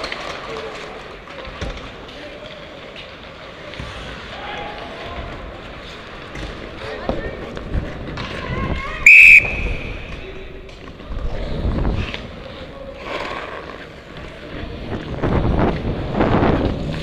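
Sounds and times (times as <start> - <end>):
ice skate blades scraping: 11.0 - 17.0
wind rushing over microphone: 14.6 - 17.0.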